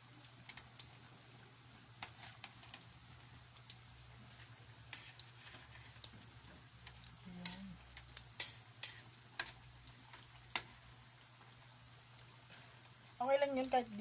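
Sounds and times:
oil sizzling: 0:00.0 - 0:14.0
tongs clicking against wok: 0:06.8 - 0:09.6.

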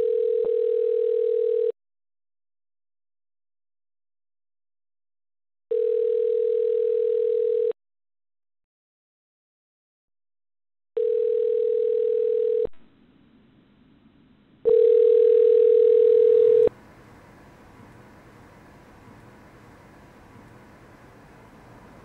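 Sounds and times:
telephone ringback tone: 0:00.0 - 0:01.7, 0:05.7 - 0:07.8, 0:11.0 - 0:12.7, 0:14.7 - 0:16.7
faint steady hiss: 0:16.6 - 0:22.0.

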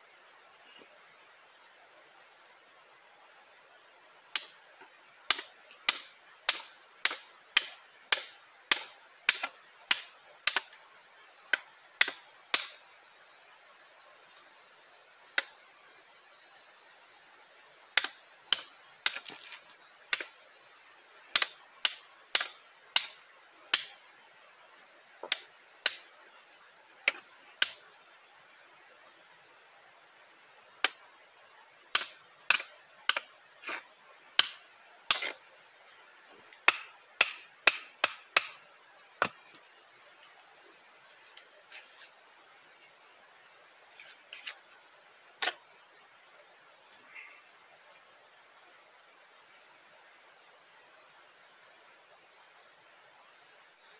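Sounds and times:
machete chopping wood: 0:04.4 - 0:04.6, 0:05.3 - 0:10.8, 0:11.5 - 0:12.8, 0:18.0 - 0:20.4, 0:21.3 - 0:24.0, 0:25.2 - 0:26.1, 0:30.8 - 0:31.0, 0:31.9 - 0:33.8, 0:34.4 - 0:35.4, 0:36.6 - 0:38.6, 0:39.2 - 0:39.5, 0:45.4 - 0:45.6.

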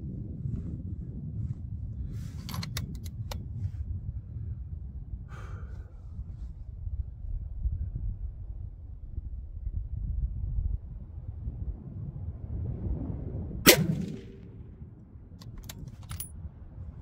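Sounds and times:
wind buffeting microphone: 0:00.0 - 0:17.0
rifle handling clicks: 0:02.4 - 0:03.4, 0:15.4 - 0:16.3.

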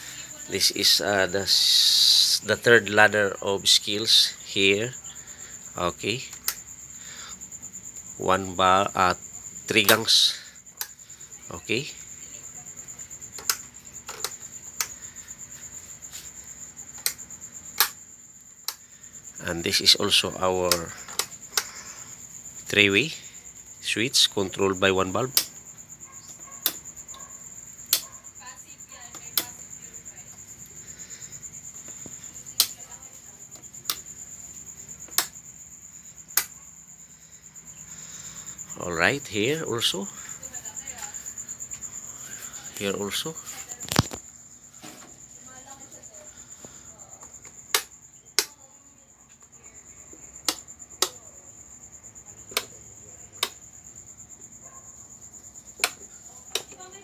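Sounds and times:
insect trilling: 0:00.0 - 0:57.0
sharp clicks: 0:06.3 - 0:06.6, 0:17.8 - 0:18.0, 0:18.6 - 0:18.8, 0:20.7 - 0:21.8, 0:25.3 - 0:25.6, 0:32.6 - 0:32.8, 0:35.1 - 0:35.4, 0:36.3 - 0:36.6, 0:47.7 - 0:48.6.

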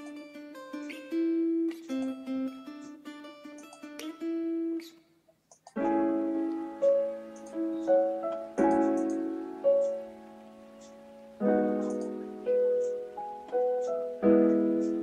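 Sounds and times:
sustained piano-like chords: 0:05.8 - 0:15.0.

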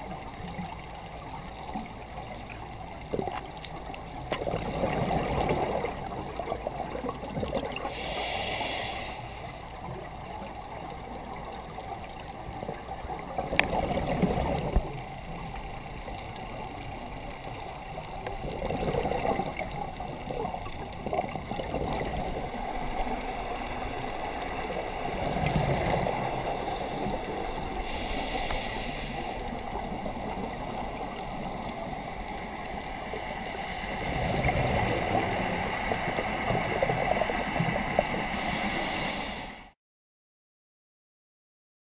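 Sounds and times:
muffled underwater noise: 0:00.0 - 0:39.7
gurgling exhaled bubbles: 0:01.6 - 0:08.7, 0:09.8 - 0:15.6, 0:16.6 - 0:39.3
short hisses: 0:07.9 - 0:09.5, 0:27.8 - 0:29.4, 0:38.4 - 0:39.8.

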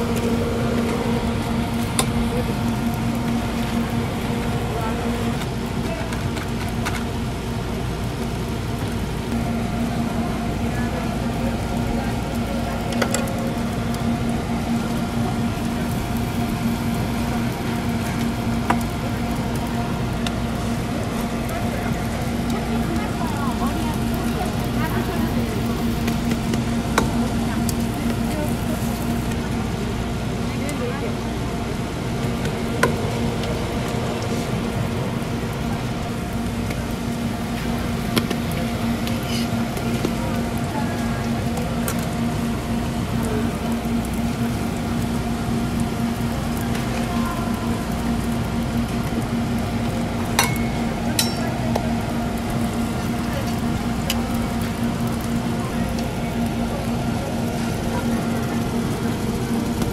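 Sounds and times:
constant low hum: 0:00.0 - 0:59.9
food sizzling on griddle: 0:00.0 - 0:59.9
metal tongs clicking on griddle: 0:50.4 - 0:51.8.

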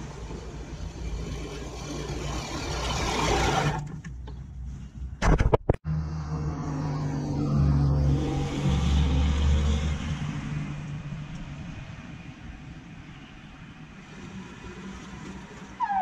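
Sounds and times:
sharp knocks and clatter: 0:05.2 - 0:05.8
car passing by: 0:05.9 - 0:11.7.

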